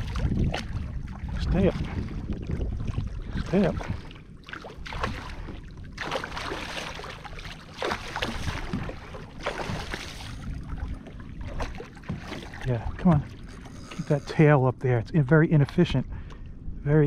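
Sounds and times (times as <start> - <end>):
fish splashing at surface: 6.0 - 10.4.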